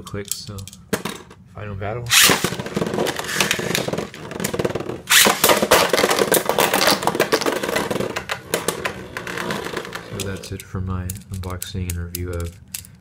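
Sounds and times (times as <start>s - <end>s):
spinning tops clacking together: 2.1s - 13.0s.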